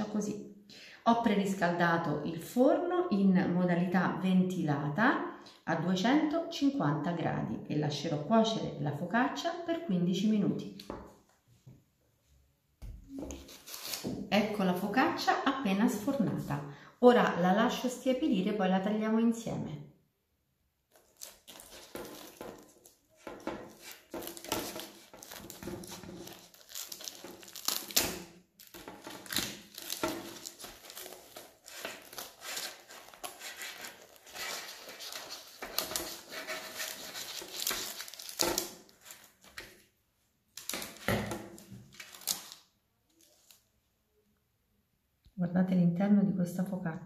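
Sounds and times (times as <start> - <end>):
knife cutting crisp bread crust: 21.0 - 38.7.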